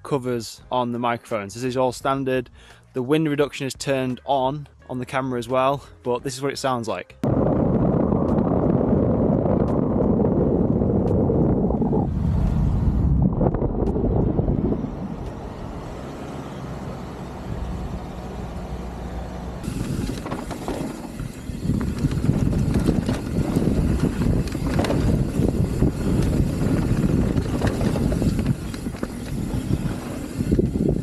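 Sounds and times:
wind buffeting microphone: 7.2s - 16.0s, 19.6s - 31.0s.

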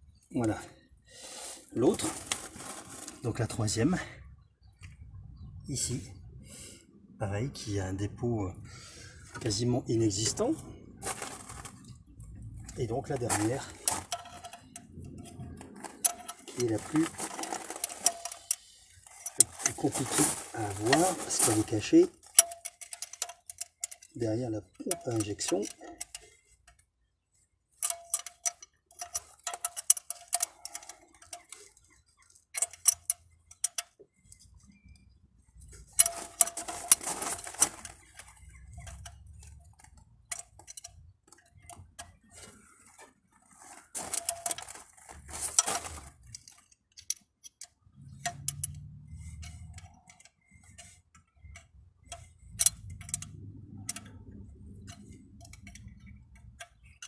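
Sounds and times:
dull handling noise on engine: 9.2s - 26.8s, 27.8s - 57.0s
ratchet wrench clicking: 45.5s - 57.0s.

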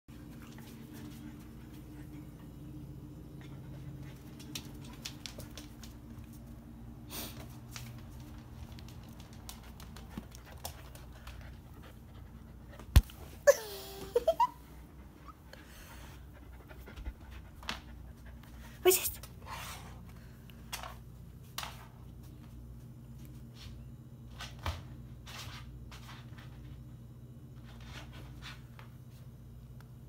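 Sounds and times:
puppy panting: 14.9s - 18.7s.

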